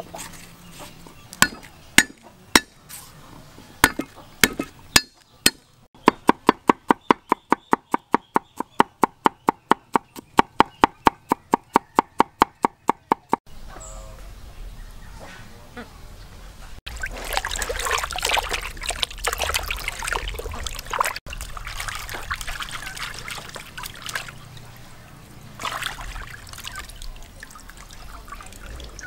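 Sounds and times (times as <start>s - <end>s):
cleaver chopping on wooden board: 1.4s - 2.8s, 3.8s - 13.4s.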